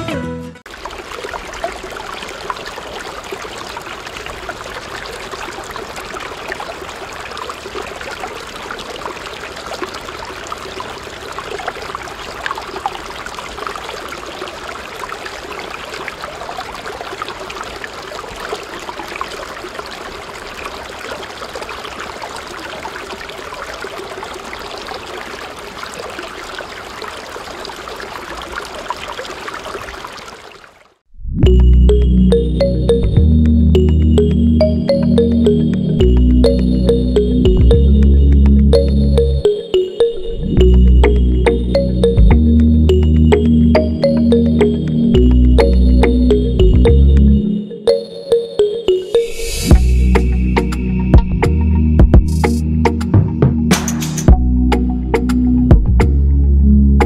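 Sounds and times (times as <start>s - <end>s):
water pouring into a pool: 0.7s - 31.1s.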